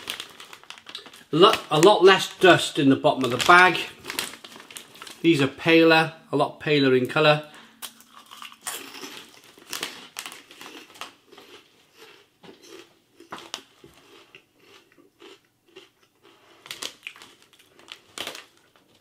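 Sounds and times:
person crunching pork rinds: 0:07.8 - 0:19.0.

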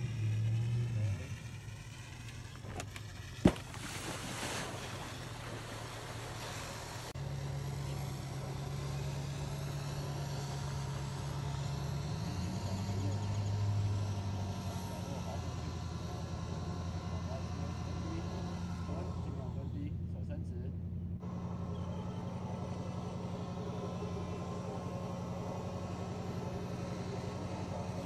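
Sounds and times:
motor humming: 0:00.0 - 0:20.4, 0:21.2 - 0:28.0.

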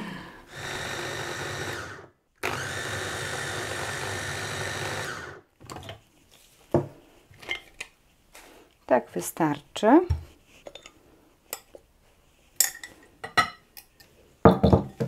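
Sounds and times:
food chopper motor running: 0:00.5 - 0:05.4.

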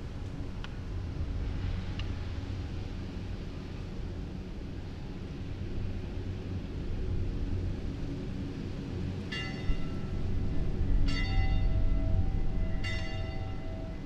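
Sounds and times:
low steady drone: 0:00.0 - 0:14.0
bell ringing: 0:12.8 - 0:13.8.

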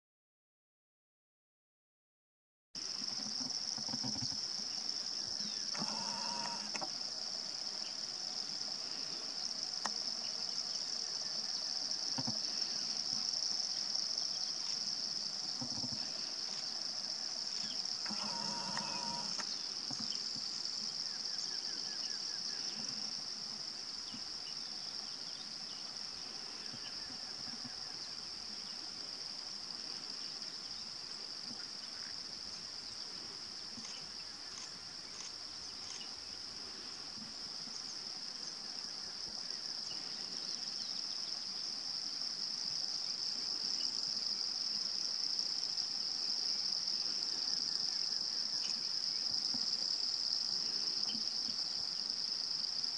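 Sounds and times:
insect chorus droning: 0:02.8 - 0:52.9
short animal calls: 0:05.7 - 0:06.8, 0:18.1 - 0:19.4.

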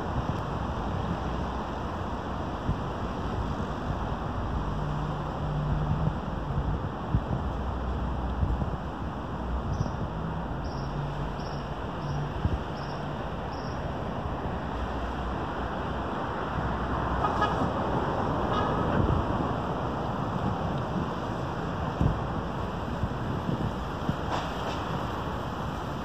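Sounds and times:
street traffic hum: 0:00.0 - 0:26.0.

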